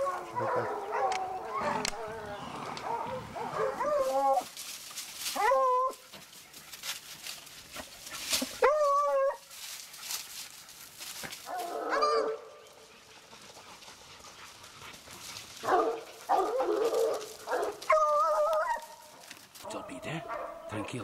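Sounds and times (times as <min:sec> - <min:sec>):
dogs yelping and whining: 0:00.0 - 0:04.6, 0:05.2 - 0:06.2, 0:08.2 - 0:09.5, 0:11.5 - 0:13.3, 0:15.6 - 0:20.9.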